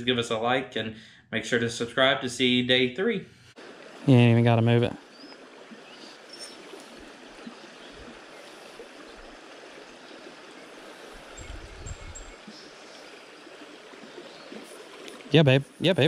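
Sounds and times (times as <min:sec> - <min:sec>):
creek water over rocks: 0:03.6 - 0:16.0.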